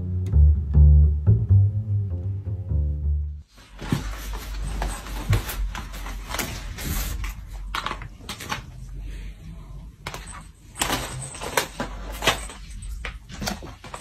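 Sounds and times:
plastic collars clattering: 3.7 - 8.8, 10.0 - 14.0.

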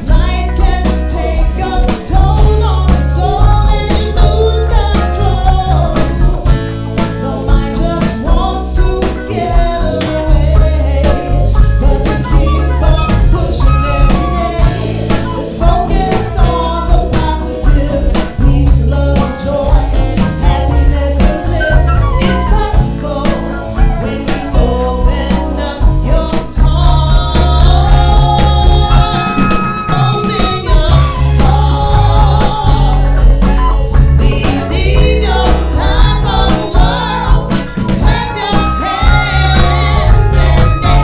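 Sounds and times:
live band playing: 0.0 - 41.0
flute melody: 29.1 - 30.7.

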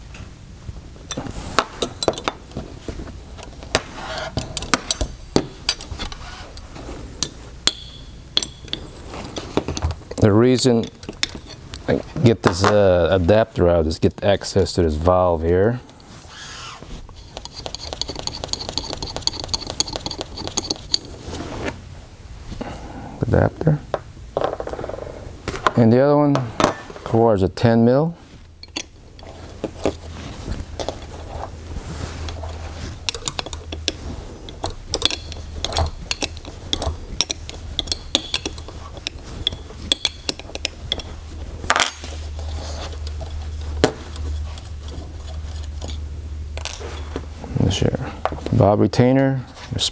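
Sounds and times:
steady low hum: 0.0 - 49.9
metal parts clicking and clinking: 1.0 - 2.6, 3.4 - 12.0, 17.1 - 21.2, 28.6 - 31.5, 32.2 - 47.2
small metal parts clicking: 17.2 - 21.2, 32.3 - 42.2.

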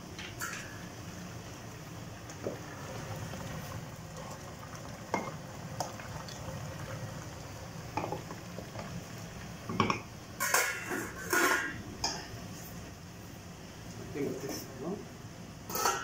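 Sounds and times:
spoon knocking pot: 5.1 - 5.4, 8.0 - 8.3
metal lid clattering: 9.7 - 12.2, 15.7 - 16.0.

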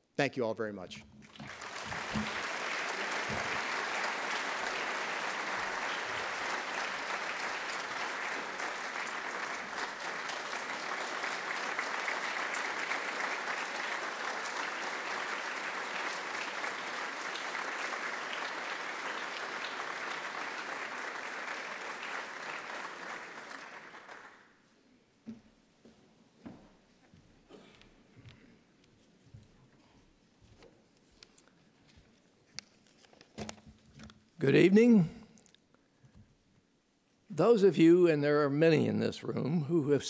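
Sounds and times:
large audience applauding: 1.2 - 24.6.

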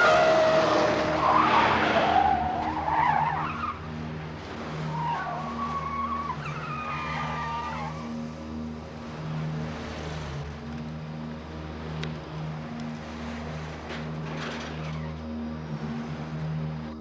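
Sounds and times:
car tyres squealing: 0.0 - 8.2
low pulsing tone: 0.0 - 17.0.

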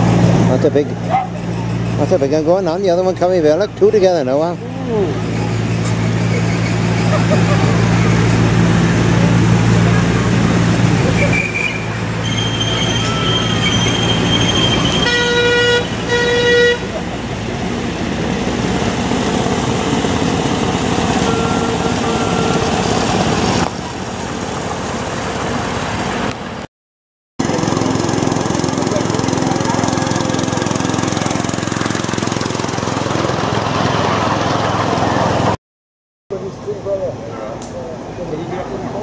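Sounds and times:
locomotive horn toots: 11.1 - 17.2, 21.2 - 22.6.

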